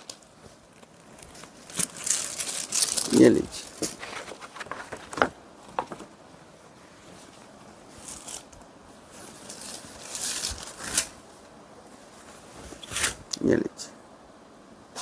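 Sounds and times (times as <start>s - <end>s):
fabric rustling and swishing: 6.3s - 13.3s.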